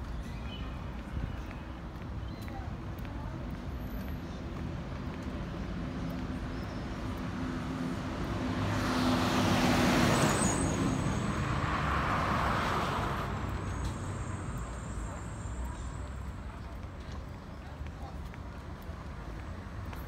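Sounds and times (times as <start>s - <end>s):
low rumble of traffic: 0.0s - 20.0s
car passing close by: 8.4s - 13.7s.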